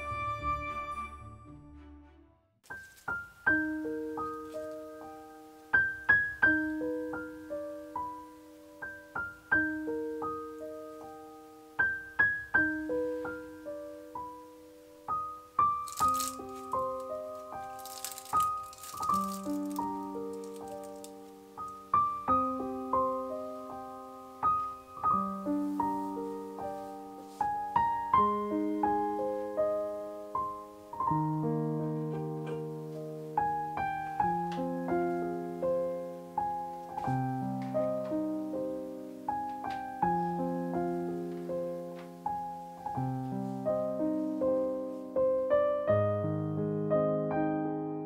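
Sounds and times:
solo piano music: 2.4s - 48.0s.

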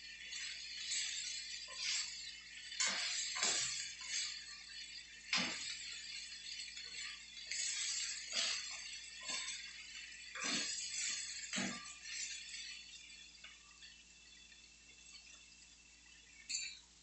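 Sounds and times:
spatula scraping a steel wok: 0.0s - 13.6s
food sizzling: 0.0s - 17.0s.

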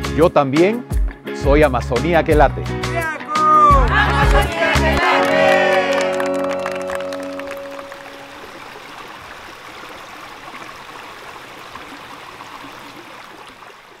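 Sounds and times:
held music notes: 2.8s - 8.8s
forest stream rushing: 5.1s - 14.0s.

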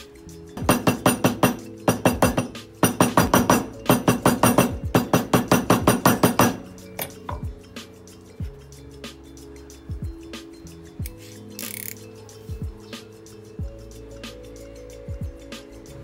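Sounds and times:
hammer tapping metal stamp: 0.6s - 7.5s.

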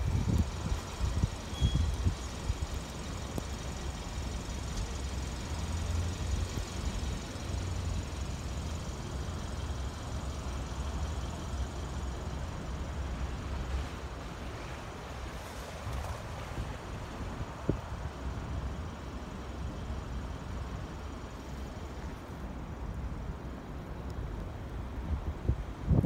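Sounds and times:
wind gusting on microphone: 0.0s - 2.9s, 24.9s - 26.0s.

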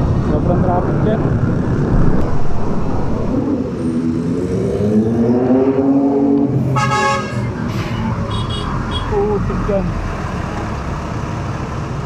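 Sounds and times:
vehicle horn: 6.7s - 9.2s.

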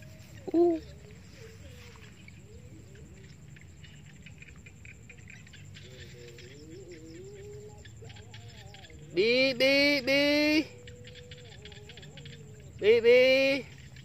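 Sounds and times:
grass rustling and crackling: 0.0s - 7.2s
distant wavering calls: 0.0s - 14.0s.

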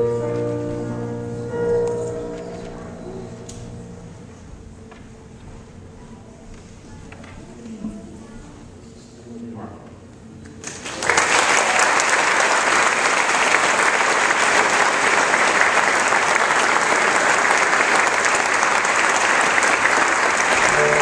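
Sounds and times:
congregation applauding: 10.6s - 21.0s.

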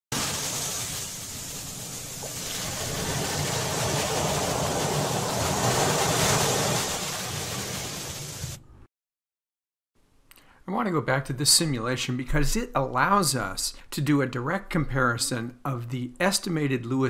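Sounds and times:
surf washing on beach: 0.1s - 8.6s.

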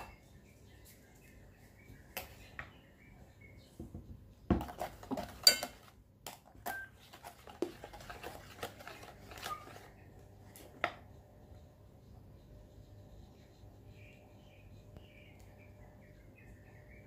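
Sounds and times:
plastic spoons knocking on bowl: 3.8s - 9.0s.

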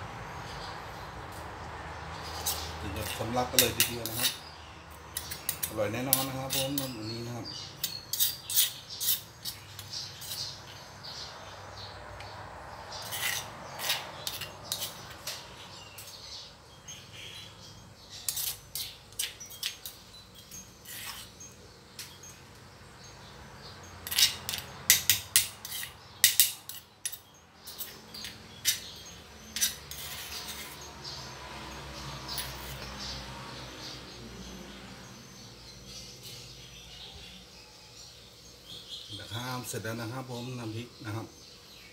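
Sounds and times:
metal spoon scraping stone mortar: 2.2s - 10.8s, 12.9s - 16.3s, 17.2s - 22.4s, 24.0s - 33.2s.

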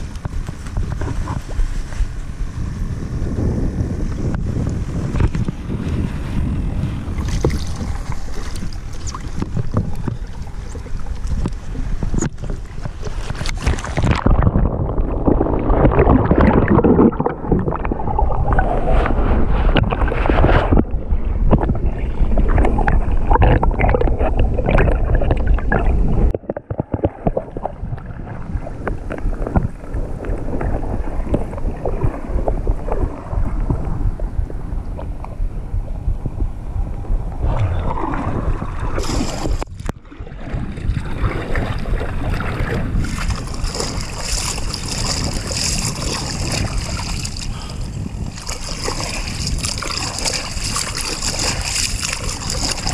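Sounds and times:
muffled underwater churning: 0.0s - 52.9s
wind buffeting camera: 0.0s - 52.9s
water splashing: 7.1s - 33.8s, 37.4s - 52.9s.

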